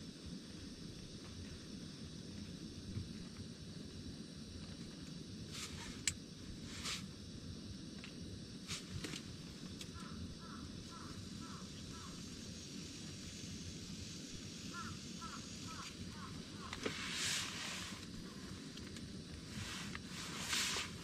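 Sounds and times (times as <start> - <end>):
crow cawing: 9.9 - 12.2, 14.7 - 16.9.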